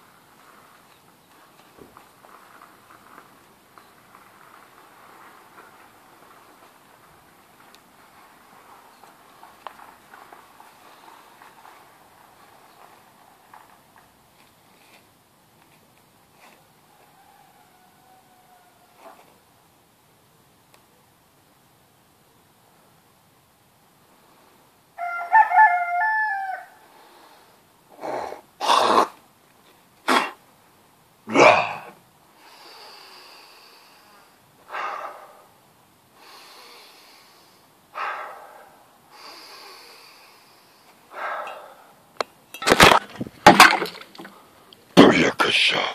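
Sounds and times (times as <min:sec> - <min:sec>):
rooster crowing: 0:16.8 - 0:19.1, 0:25.0 - 0:26.8
breathy hissing: 0:31.8 - 0:42.0.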